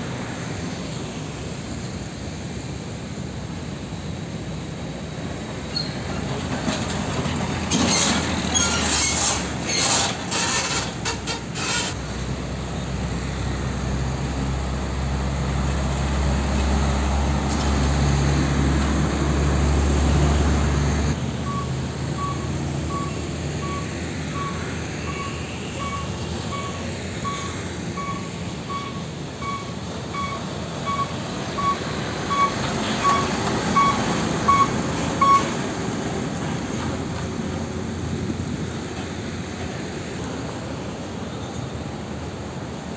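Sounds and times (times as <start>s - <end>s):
deep truck engine rumble: 0.0s - 42.9s
traffic noise: 0.0s - 42.9s
vehicle warning alarm beeping: 21.4s - 35.6s.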